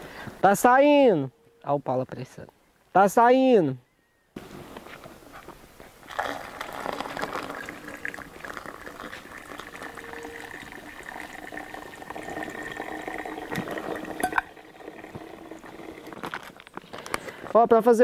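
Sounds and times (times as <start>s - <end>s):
hot coffee pouring: 6.0s - 16.8s.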